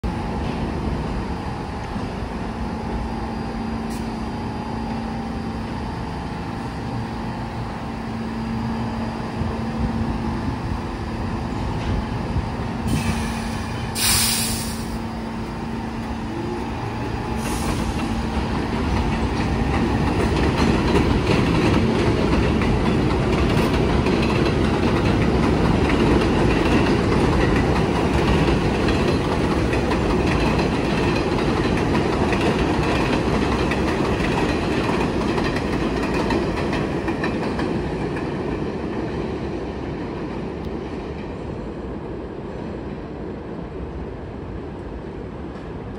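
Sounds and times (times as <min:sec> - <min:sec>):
train motors humming: 0:00.1 - 0:45.9
wheel and rail rumble: 0:00.1 - 0:45.9
brief hiss: 0:12.9 - 0:15.0.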